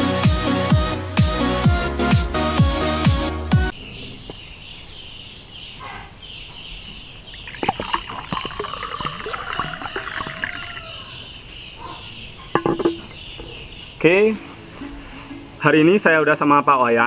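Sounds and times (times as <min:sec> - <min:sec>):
liquid pouring into glass: 0:07.3 - 0:11.1.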